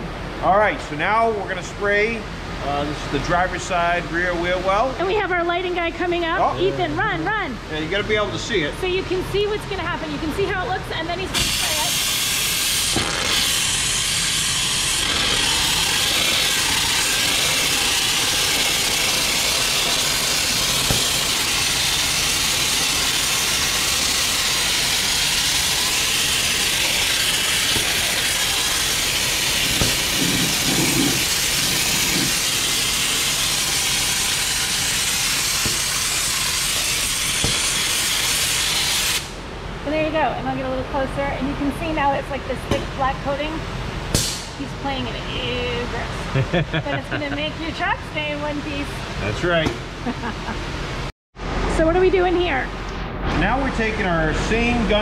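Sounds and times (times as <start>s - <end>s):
spray gun hissing: 11.3s - 39.4s.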